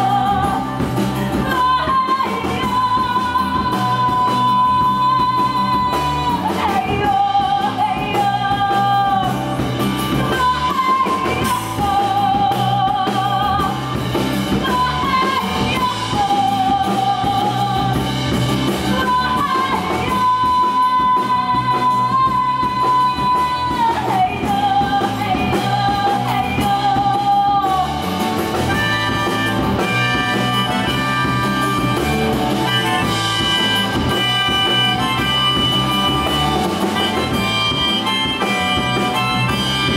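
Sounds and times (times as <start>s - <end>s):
live rock band: 0.0s - 39.9s.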